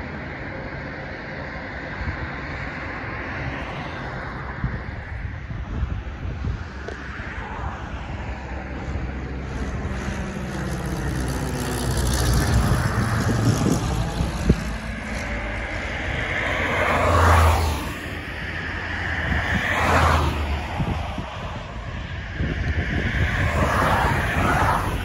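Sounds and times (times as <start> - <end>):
light plane propeller droning: 0.0 - 25.0.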